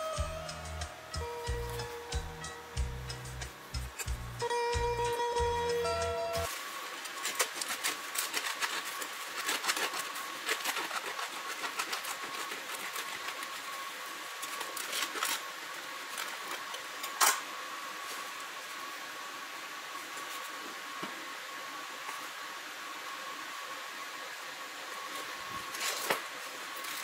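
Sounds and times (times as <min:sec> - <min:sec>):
bread crust crackling: 0:06.4 - 0:18.8
knife sawing through bread: 0:07.2 - 0:14.9.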